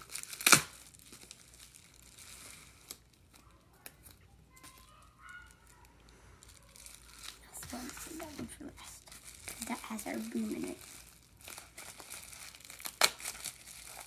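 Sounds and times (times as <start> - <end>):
loud sharp crackle: 0.0 - 3.4, 9.1 - 14.0
plastic pouch crinkling: 0.0 - 14.0.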